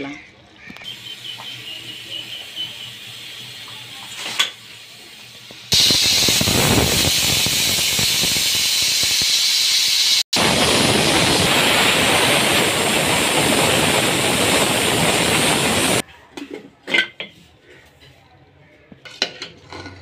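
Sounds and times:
pressure cooker steam hissing: 0:00.9 - 0:16.0.

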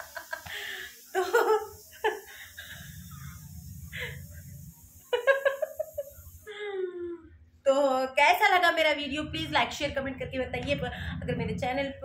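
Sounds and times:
woman laughing: 0:00.0 - 0:02.3, 0:05.1 - 0:07.0.

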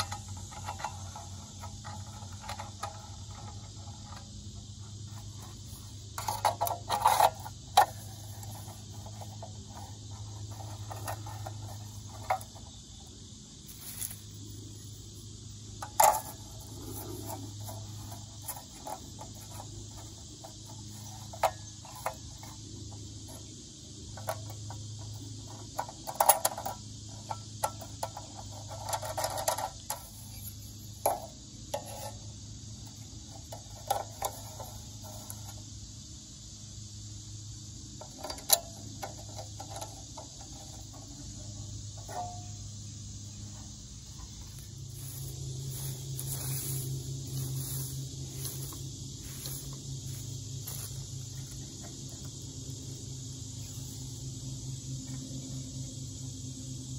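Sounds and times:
insects droning: 0:00.0 - 0:56.9.

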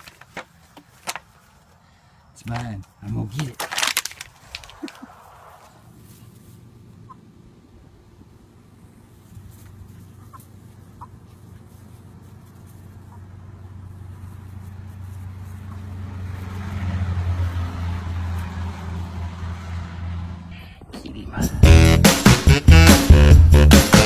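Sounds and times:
hen clucking: 0:06.9 - 0:07.3, 0:09.3 - 0:14.1.

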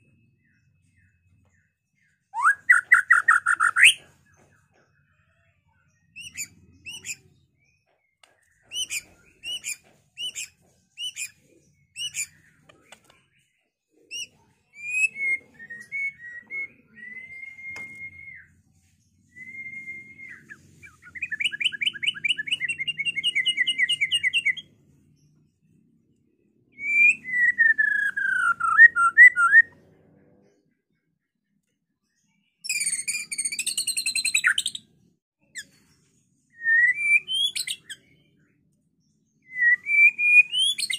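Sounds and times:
bird song with whistles and trills: 0:00.0 - 0:30.0, 0:31.0 - 0:40.9.

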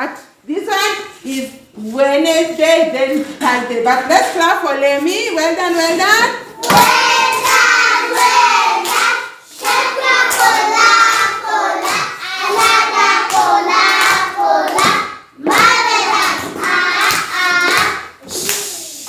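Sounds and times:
children singing a chant: 0:06.6 - 0:18.5
rhythmic hand clapping: 0:06.6 - 0:18.7.

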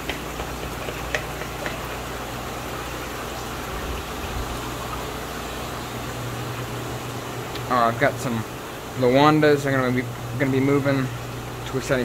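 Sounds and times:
air bubbling through tanks: 0:00.0 - 0:09.1
low machine hum: 0:00.0 - 0:12.0.

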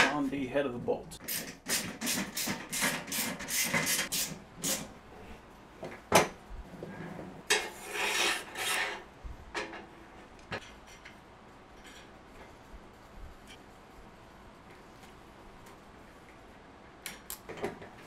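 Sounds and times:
scraping rub: 0:06.8 - 0:09.0.

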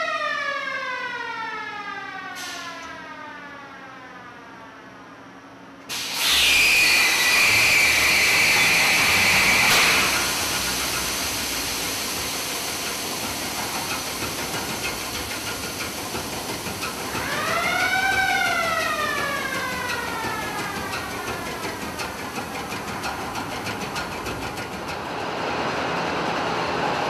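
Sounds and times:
loud whistling hiss: 0:05.9 - 0:15.8
engine whine: 0:06.1 - 0:27.0
marine diesel engine running: 0:08.6 - 0:27.0.

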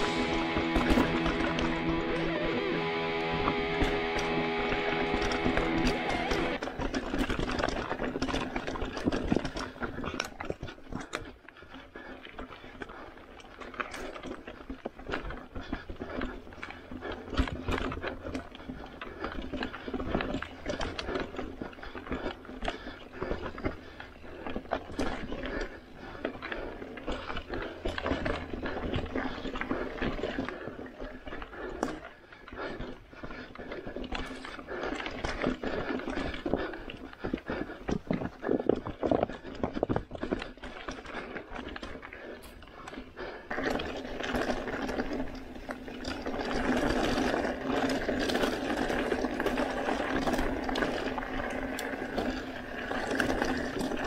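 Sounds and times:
tyres crunching over rock: 0:00.0 - 0:11.6, 0:12.2 - 0:54.0
bike frame and chain rattling: 0:03.8 - 0:11.7, 0:12.3 - 0:54.0.

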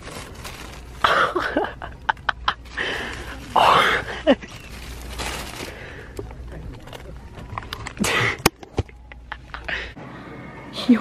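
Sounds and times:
plastic packaging rustling: 0:00.0 - 0:08.0
sharp crackles: 0:02.8 - 0:06.0.

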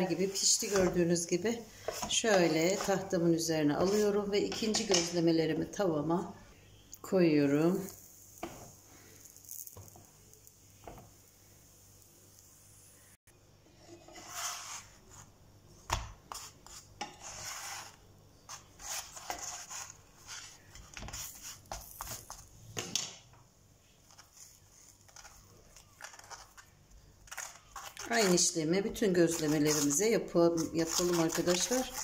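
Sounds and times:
fork scraping flatbread: 0:01.8 - 0:03.1, 0:03.8 - 0:05.0, 0:13.7 - 0:15.3, 0:16.3 - 0:22.5, 0:24.0 - 0:32.0.

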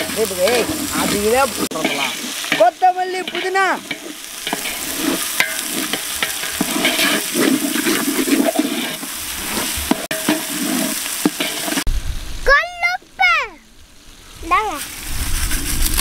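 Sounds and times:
metal ladle scraping a pot: 0:00.0 - 0:11.9
vegetables sizzling in oil: 0:00.0 - 0:16.0.

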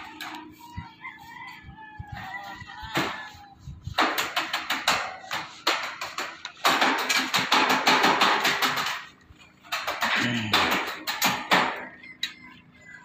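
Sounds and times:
metallic clatter on steel sheets: 0:03.9 - 0:12.4.

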